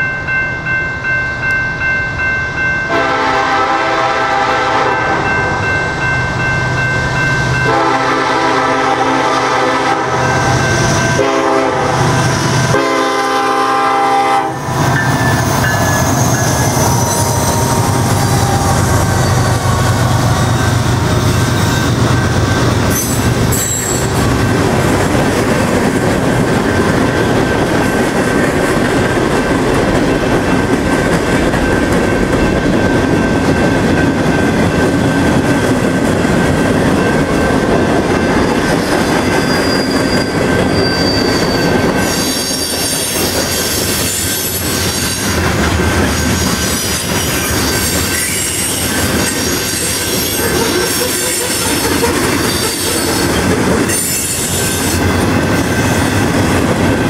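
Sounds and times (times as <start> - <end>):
train horn: 2.9 - 5.8, 7.6 - 20.8
locomotive engine drone: 14.3 - 38.3.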